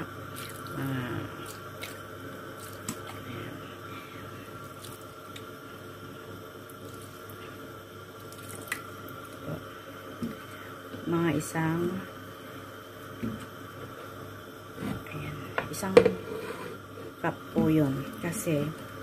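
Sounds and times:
liquid pouring and splashing: 0.2 - 3.2, 4.6 - 5.5, 8.2 - 9.4.

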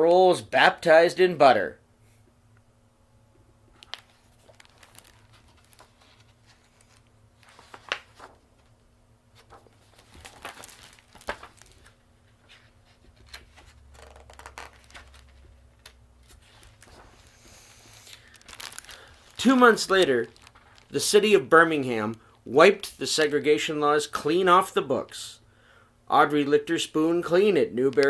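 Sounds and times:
paper pages rustling: 3.8 - 22.2.

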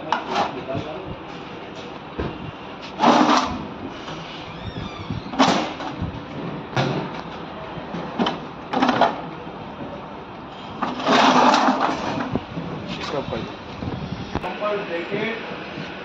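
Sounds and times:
metal parts knocking and scraping: 10.8 - 13.2.

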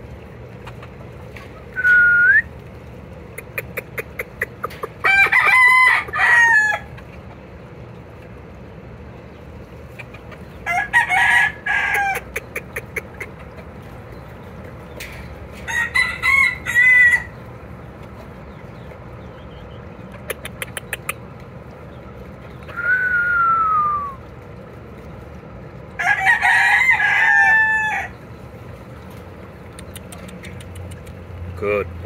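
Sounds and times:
roosters crowing: 4.4 - 7.5, 10.0 - 17.9, 22.6 - 24.3, 25.8 - 31.0
sharp clicks: 20.2 - 21.2, 29.8 - 31.2.

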